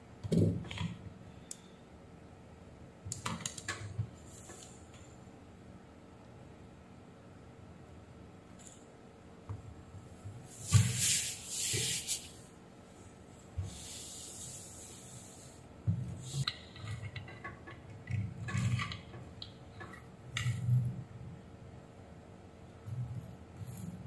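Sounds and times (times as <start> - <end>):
cloth wiping circuit board: 10.4 - 12.5, 13.5 - 16.5.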